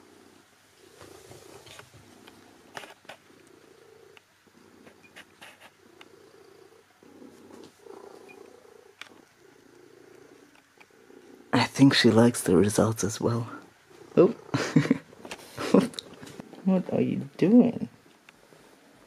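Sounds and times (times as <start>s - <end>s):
cat purring: 0.0s - 19.0s
faint clicks: 1.6s - 6.2s, 7.5s - 11.3s.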